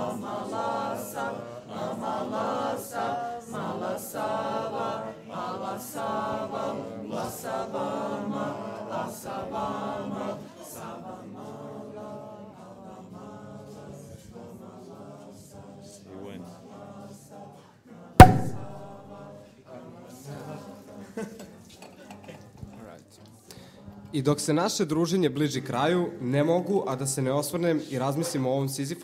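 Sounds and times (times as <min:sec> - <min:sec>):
choir singing: 0:00.0 - 0:21.3.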